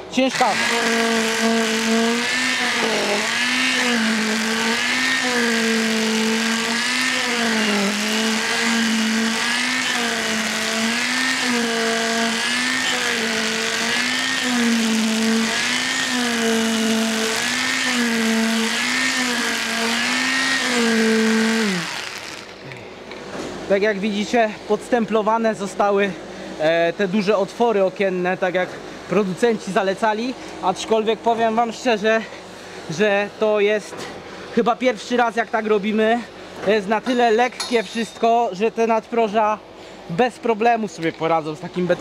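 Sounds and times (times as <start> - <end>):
concrete vibrator motor hum: 0.0 - 23.2.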